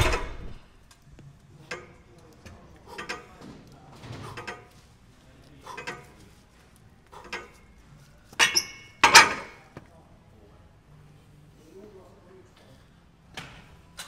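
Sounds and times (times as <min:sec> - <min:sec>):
faint voices: 0:01.0 - 0:08.5
gym weights clanking: 0:08.4 - 0:09.6.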